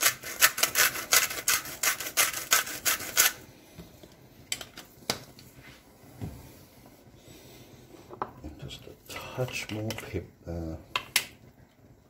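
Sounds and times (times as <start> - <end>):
salt grinder grinding: 0.0 - 3.4.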